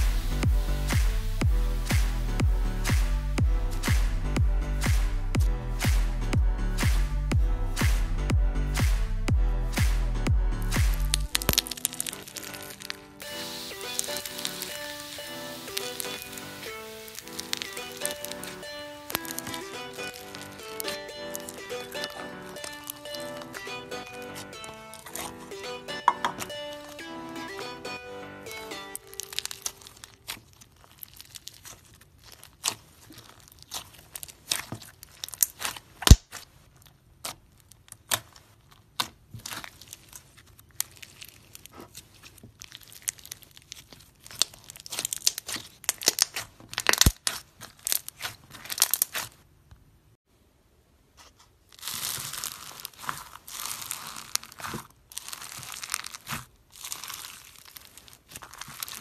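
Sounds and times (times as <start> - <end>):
crunchy slime crackling and popping: 10.8 - 25.5, 28.9 - 49.5, 51.5 - 59.0
foam slime crackling: 10.9 - 25.5, 28.6 - 49.5, 51.2 - 59.0
loud slime snaps: 45.3 - 47.4.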